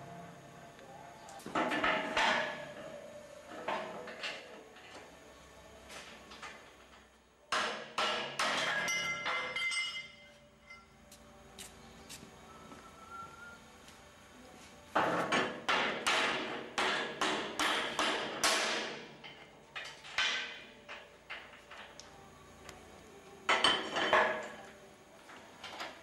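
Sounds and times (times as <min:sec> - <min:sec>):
ringing metal-on-metal strikes: 0:08.4 - 0:11.0.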